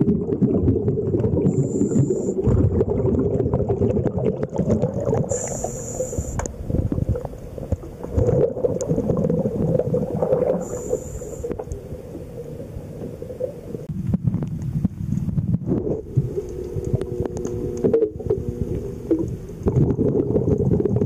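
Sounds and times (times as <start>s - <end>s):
exhaled bubbles gurgling: 0.0s - 21.0s
diver breathing through regulator: 1.4s - 2.4s, 5.3s - 6.5s, 10.5s - 11.7s.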